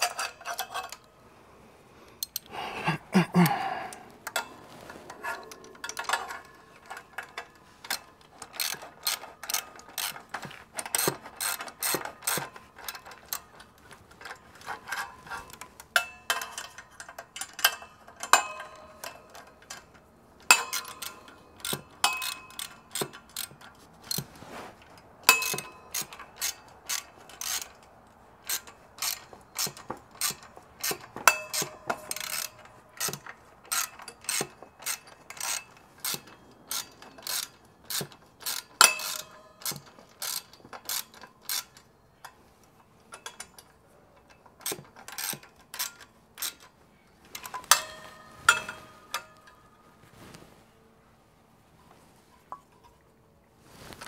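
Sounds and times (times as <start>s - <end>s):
metallic clinks of tools: 0.0s - 1.1s, 2.2s - 24.2s, 25.2s - 27.8s, 28.4s - 49.8s
ratchet wrench clicking: 5.8s - 13.5s, 20.5s - 24.2s, 25.3s - 27.8s, 28.4s - 41.8s, 44.6s - 46.7s.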